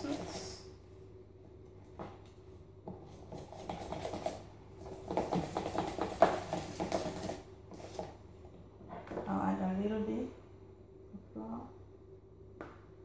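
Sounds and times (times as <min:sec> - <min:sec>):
spoon stirring batter in jug: 0:02.9 - 0:08.1.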